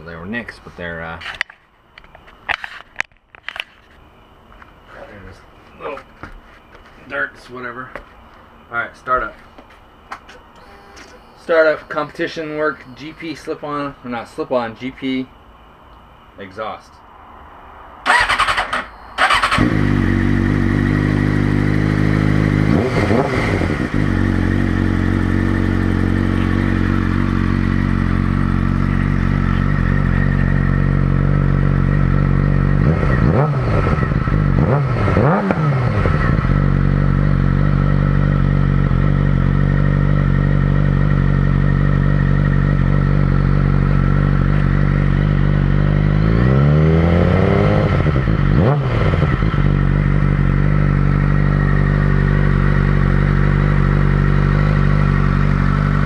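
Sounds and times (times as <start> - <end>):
motorcycle engine idling and revving: 18.0 - 56.0.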